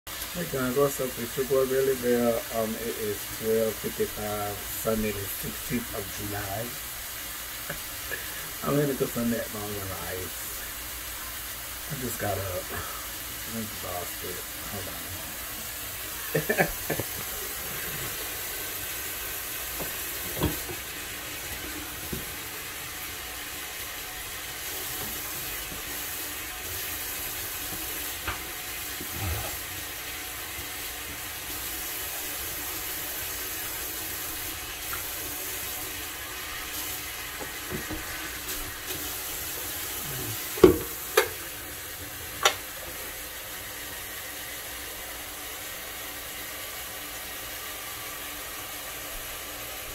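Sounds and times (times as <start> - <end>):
faucet running into a pot: 0.1 - 45.0
pot knocking against sink: 19.8 - 20.8, 40.6 - 41.4.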